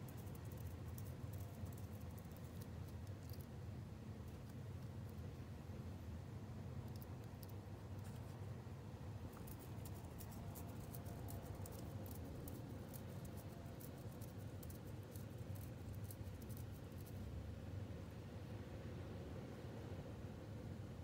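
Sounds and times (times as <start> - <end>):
low steady hum: 0.0 - 21.0.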